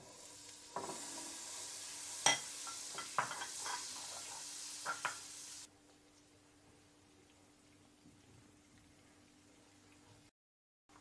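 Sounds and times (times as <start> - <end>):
butter sizzling in pan: 0.0 - 5.7.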